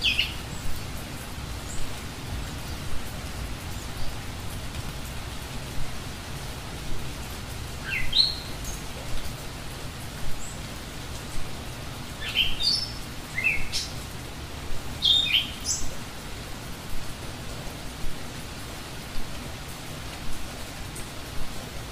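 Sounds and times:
birds chirping: 0.0s - 5.2s, 7.7s - 11.0s, 12.1s - 14.1s
rain hiss: 0.0s - 21.9s.

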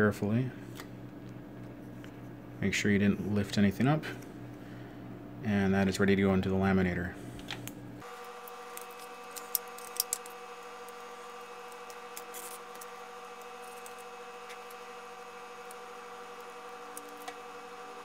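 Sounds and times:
faint steady hum: 0.0s - 18.0s
clicks and crinkles of film: 7.4s - 15.0s, 15.6s - 17.5s.

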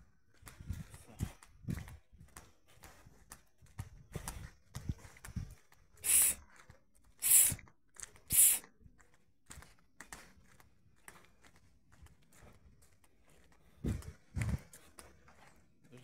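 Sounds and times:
short rushes of hissing: 6.0s - 6.4s, 7.2s - 7.6s, 8.3s - 8.6s.

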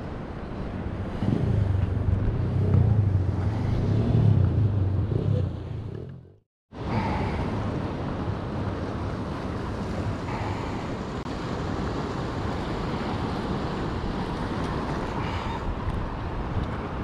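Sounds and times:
wind buffeting microphone: 0.0s - 6.4s
surf washing against rocks: 6.8s - 17.0s.

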